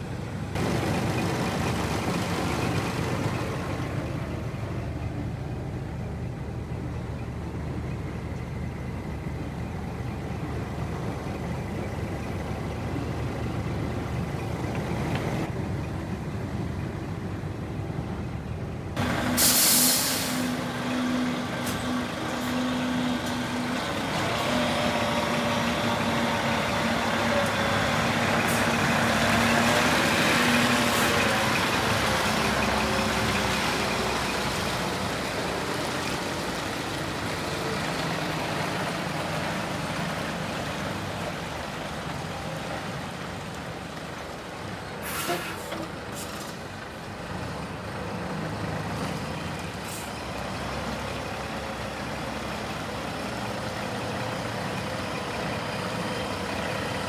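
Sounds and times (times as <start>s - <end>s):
diesel truck engine idling: 0.0s - 57.0s
compressed air hiss: 19.3s - 20.6s.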